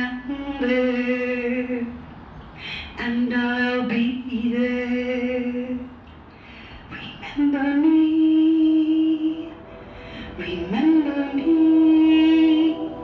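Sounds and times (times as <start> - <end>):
woman singing unaccompanied: 0.0 - 2.0, 2.8 - 6.0, 6.9 - 13.0.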